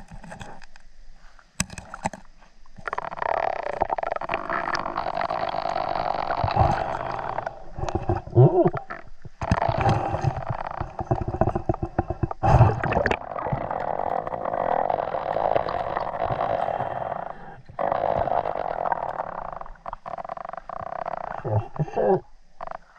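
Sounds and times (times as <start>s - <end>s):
gurgling: 2.8s - 22.9s
muffled underwater water rush: 3.7s - 20.0s.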